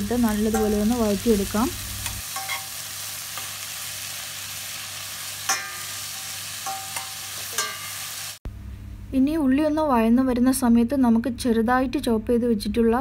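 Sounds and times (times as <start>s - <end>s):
onions sizzling in hot oil: 0.0s - 8.4s.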